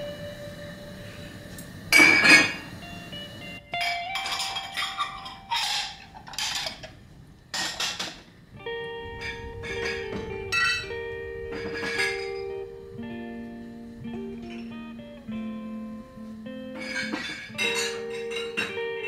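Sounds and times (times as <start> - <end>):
glass dishes clinking: 1.9 - 2.6, 3.8 - 6.9, 9.2 - 10.9, 11.5 - 12.6, 16.8 - 18.9.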